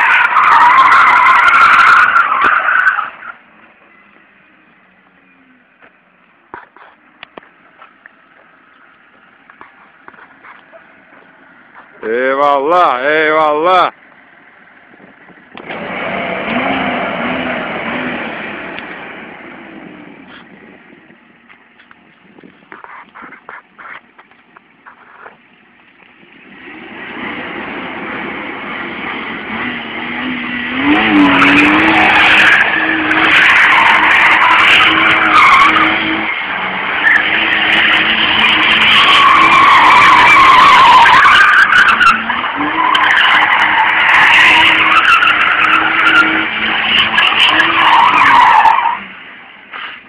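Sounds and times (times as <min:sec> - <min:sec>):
tyres squealing: 0:00.0 - 0:05.6, 0:30.0 - 0:49.1
car engine at high revs: 0:14.4 - 0:50.0.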